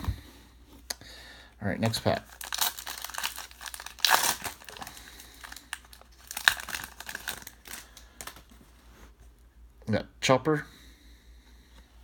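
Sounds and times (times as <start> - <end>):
foil wrapper tearing and crinkling: 2.1 - 8.4.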